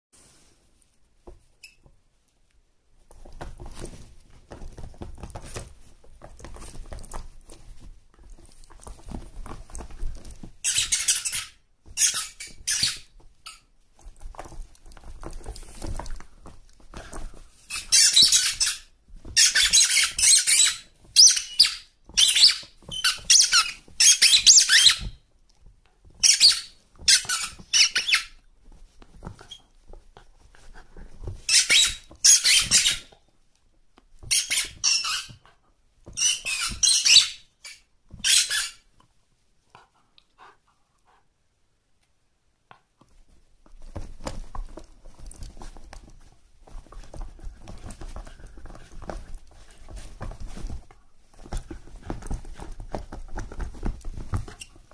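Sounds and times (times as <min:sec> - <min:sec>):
rustling and shuffling: 0:00.1 - 0:54.9
squeaky dog toy squealing: 0:10.6 - 0:13.6, 0:19.4 - 0:25.2, 0:34.3 - 0:35.4, 0:36.2 - 0:38.8.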